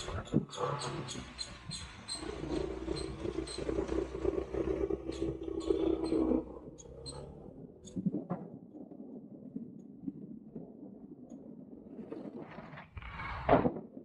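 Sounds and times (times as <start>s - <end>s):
wind and road noise: 0.0s - 10.7s.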